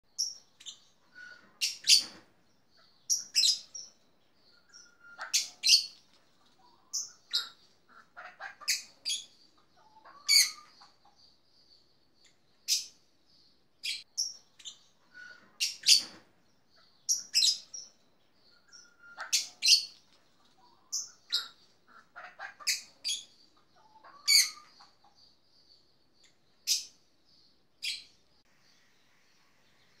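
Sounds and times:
marmoset chirping: 0.2 - 6.1, 6.7 - 11.7, 13.8 - 27.0.

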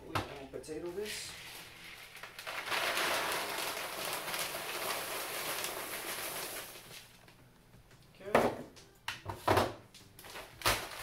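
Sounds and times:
pellets pouring into plastic bag: 1.0 - 7.1.

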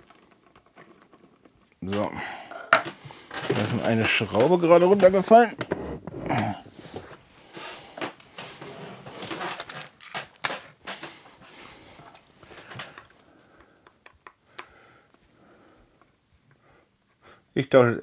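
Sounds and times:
small parts clicking and tapping: 12.7 - 15.2.

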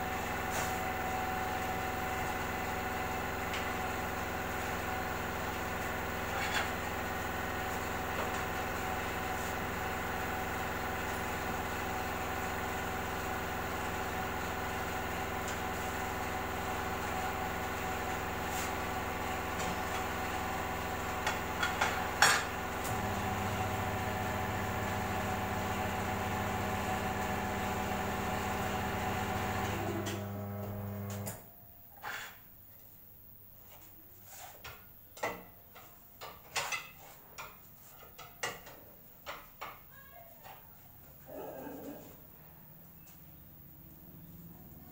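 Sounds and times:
tyre changer motor humming: 1.0 - 31.4.

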